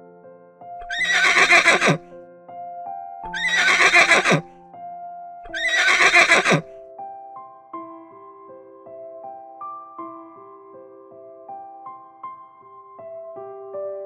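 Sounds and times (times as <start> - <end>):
soft piano music: 0.0 - 14.0
horse whinnying: 0.8 - 2.0, 3.2 - 4.5, 5.5 - 6.7.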